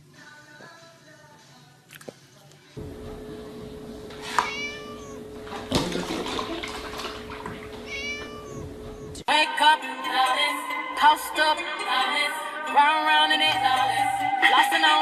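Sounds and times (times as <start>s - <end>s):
steady hum: 2.8s - 9.2s
cat meowing: 4.2s - 5.4s, 7.7s - 9.2s
milk pouring into a plastic bucket: 5.4s - 8.0s.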